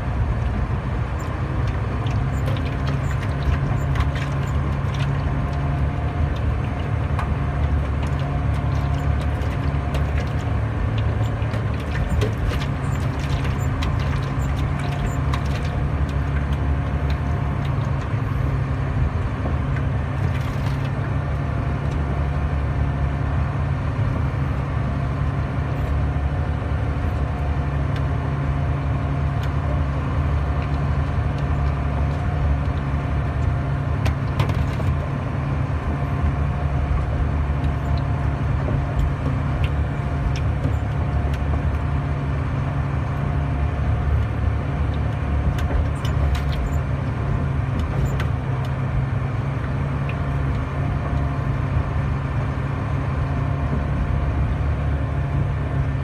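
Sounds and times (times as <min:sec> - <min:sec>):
truck diesel engine running: 0:00.0 - 0:56.0
knocks and rattles: 0:01.6 - 0:18.2.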